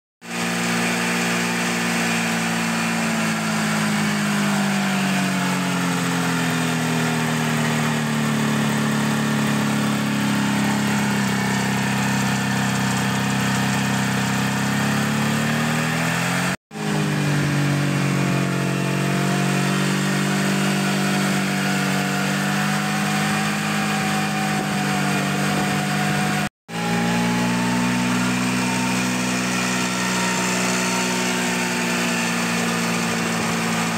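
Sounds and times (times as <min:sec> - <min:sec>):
snowmobile engine idling: 0:00.2 - 0:18.2, 0:31.0 - 0:33.9.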